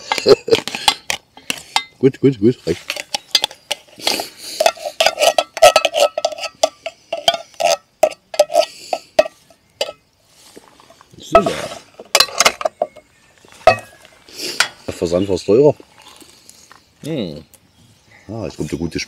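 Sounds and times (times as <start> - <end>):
metal spoon clinking on cookware: 4.6 - 10.0
rustling: 8.4 - 15.1.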